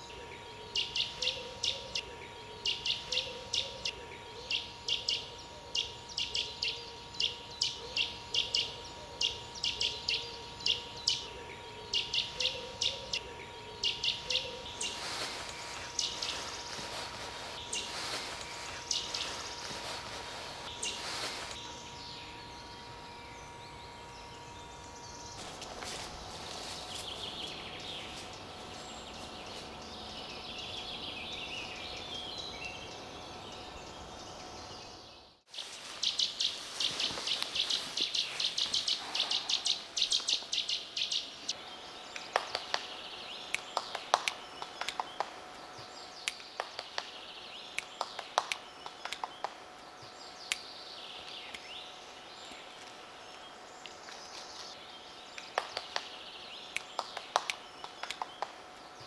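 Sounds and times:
songbirds chirping and singing: 0.0 - 59.0
sharp clicks: 43.5 - 45.6, 46.2 - 49.6, 56.7 - 58.9.

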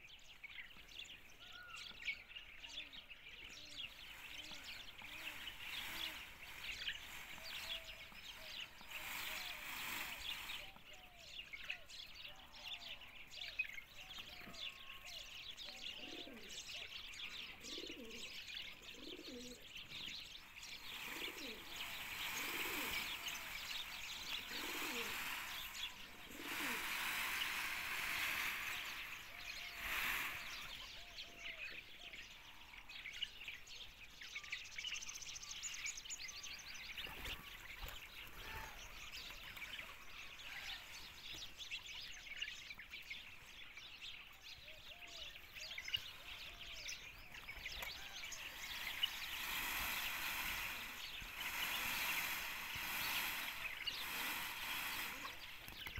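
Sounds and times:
small birds chirping: 0.0 - 55.9
pigeons cooing: 3.5 - 13.1, 14.0 - 31.8, 44.9 - 55.9
wings flapping: 4.3 - 10.7, 20.6 - 30.9, 47.4 - 55.9.

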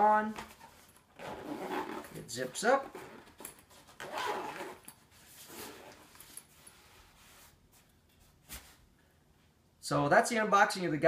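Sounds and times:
zipper closing on a bag: 1.2 - 6.2.

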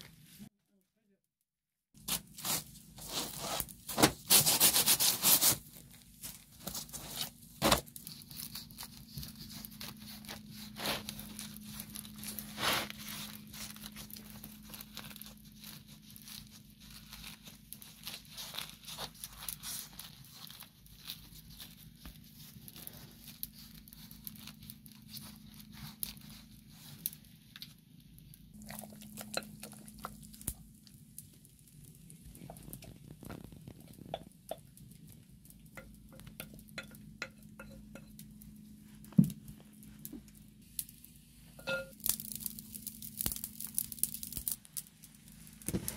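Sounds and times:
crisp flatbread crackling: 2.0 - 45.9.

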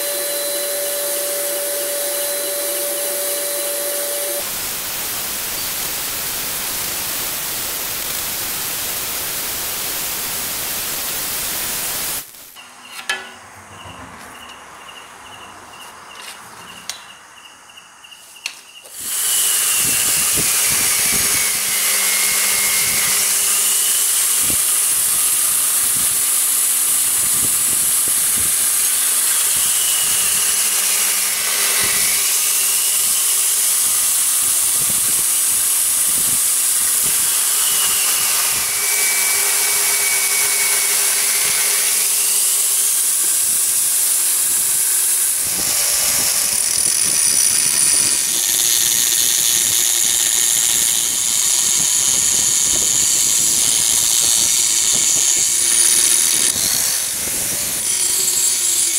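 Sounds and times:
belt grinder grinding steel blade: 0.0 - 10.2, 19.0 - 58.9
angle grinder grinding blade: 0.0 - 13.4, 18.9 - 58.9.

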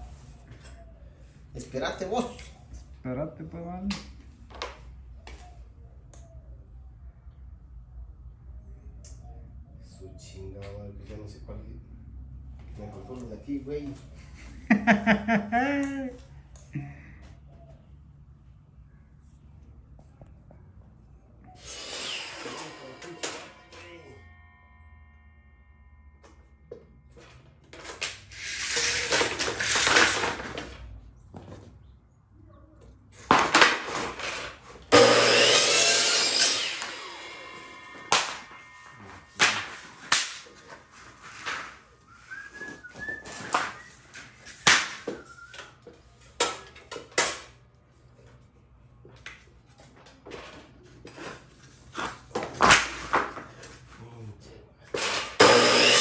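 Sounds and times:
miter saw cutting: 21.6 - 24.6, 34.9 - 40.1, 55.0 - 56.0.

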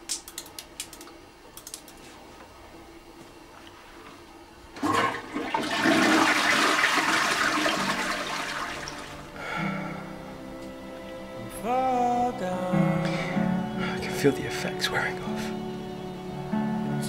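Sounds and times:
toilet flushing: 4.7 - 9.3.

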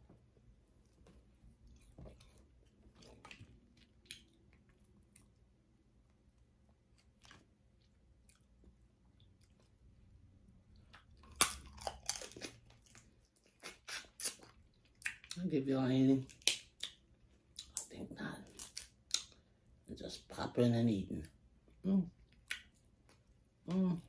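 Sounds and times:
close-up chewing: 0.0 - 15.5, 16.2 - 19.8
crab shell crunching: 10.9 - 15.5, 16.2 - 19.4.

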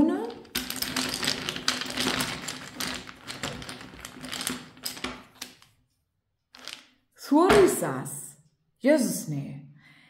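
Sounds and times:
stones clicking and rattling: 0.3 - 5.8, 6.5 - 7.0.

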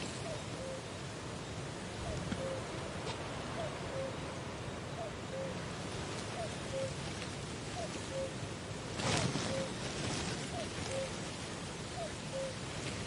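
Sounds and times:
outdoor ambience hiss: 0.0 - 13.0.

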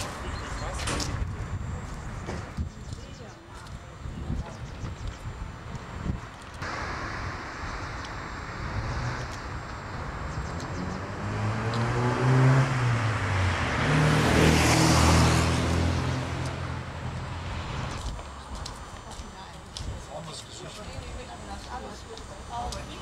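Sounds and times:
car driving past: 6.6 - 18.0.

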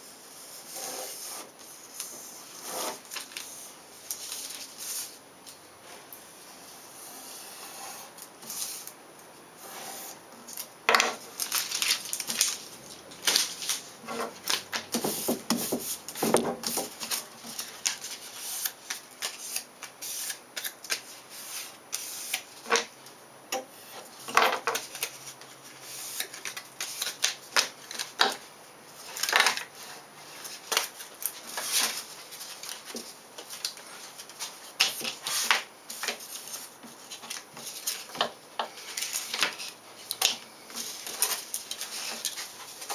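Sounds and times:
contact paper crackling and rustling: 0.7 - 5.2, 10.0 - 22.9, 24.0 - 42.9.

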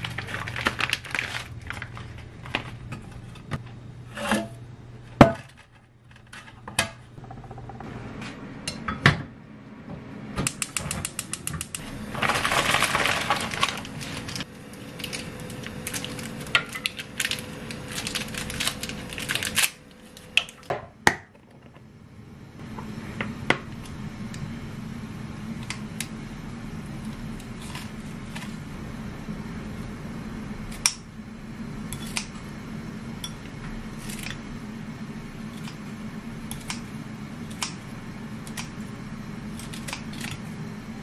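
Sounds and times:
steady low hum: 0.0 - 41.0
scissors snipping cabbage: 39.5 - 40.4.

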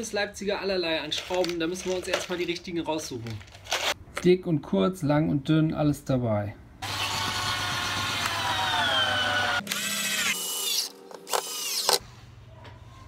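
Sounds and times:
cordless drill driving screws: 6.8 - 12.0.

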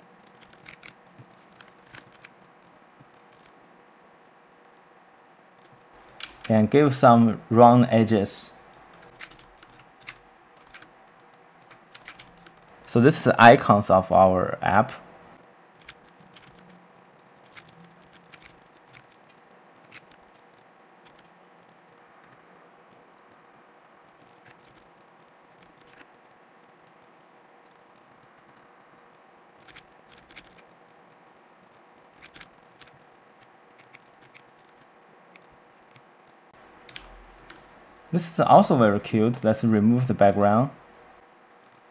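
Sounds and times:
low steady hiss and hum: 0.0 - 41.9
mouse and keyboard clicks: 0.2 - 3.6, 5.6 - 6.5, 8.7 - 12.9, 15.4 - 37.7, 41.6 - 41.9.

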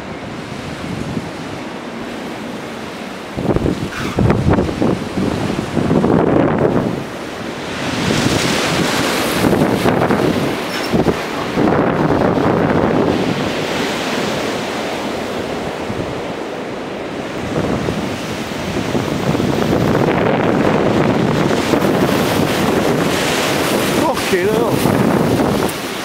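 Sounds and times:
gale wind through trees: 0.0 - 26.0
wind buffeting microphone: 0.0 - 26.0.

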